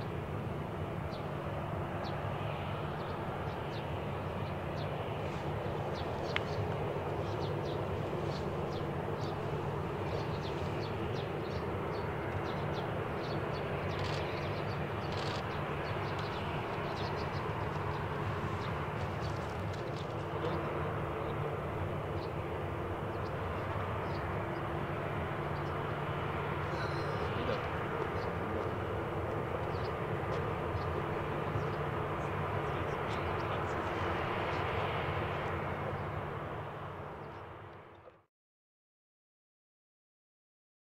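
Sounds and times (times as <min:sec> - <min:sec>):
jet engines idling: 0:00.0 - 0:38.2
small birds chirping: 0:03.0 - 0:21.4, 0:26.6 - 0:34.8.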